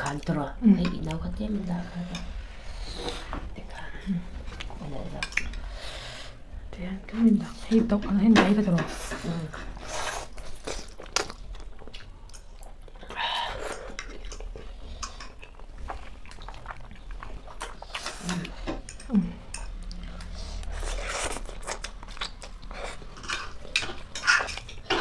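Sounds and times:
chewing noodles: 9.7 - 25.0.

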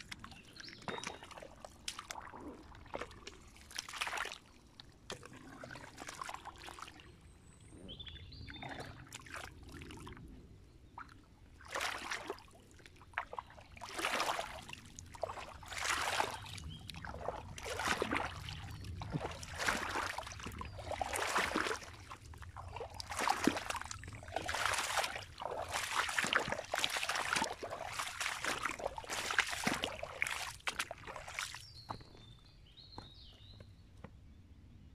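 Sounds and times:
boots splashing through muddy water: 0.0 - 7.1, 11.0 - 33.6.

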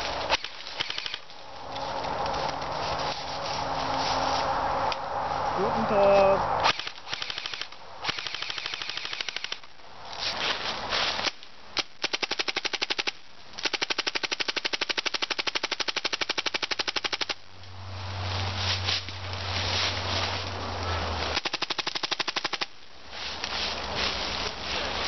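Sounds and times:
airsoft rifles firing bursts: 0.3 - 1.2, 6.7 - 9.6, 11.8 - 17.4, 21.3 - 22.7.

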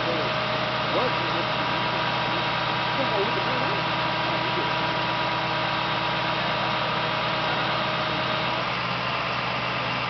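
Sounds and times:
vehicle engine idling: 0.0 - 10.0.

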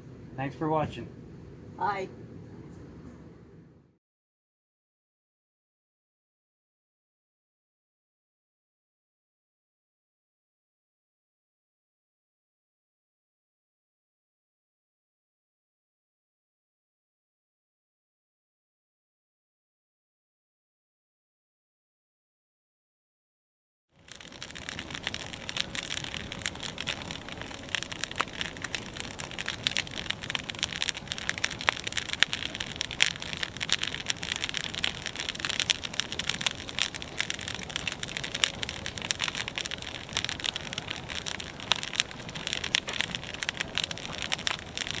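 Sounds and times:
fire crackling: 24.0 - 45.0.

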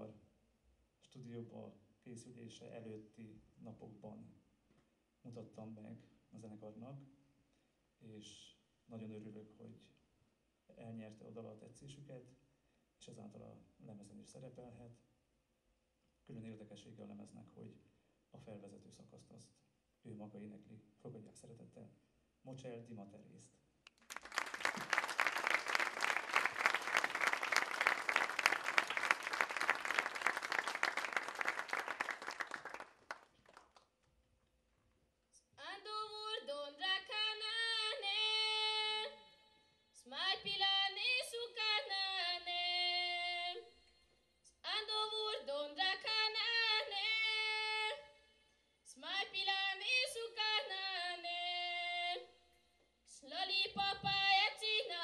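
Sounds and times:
audience applauding: 24.0 - 33.8
girl singing unaccompanied: 35.6 - 39.2, 40.0 - 43.7, 44.6 - 48.0, 48.9 - 52.3, 53.1 - 55.0.

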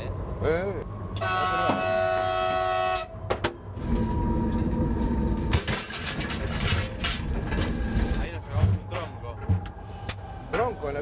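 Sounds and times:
train rolling rumble: 0.1 - 11.0
locomotive air horn blast: 1.2 - 3.2.

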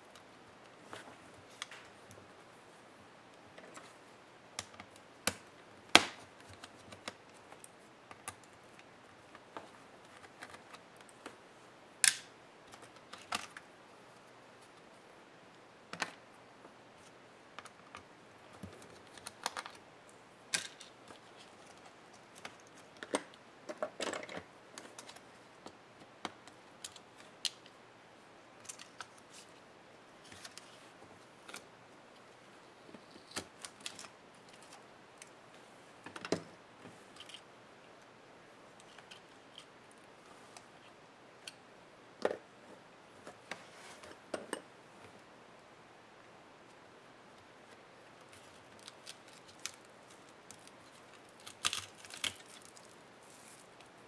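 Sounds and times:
rustling: 47.6 - 54.0.

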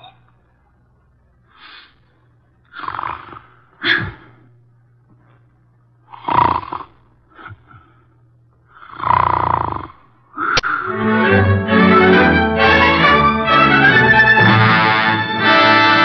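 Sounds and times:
low steady hum: 0.0 - 16.0
man snoring: 2.7 - 4.2, 6.1 - 7.6, 8.8 - 10.5.

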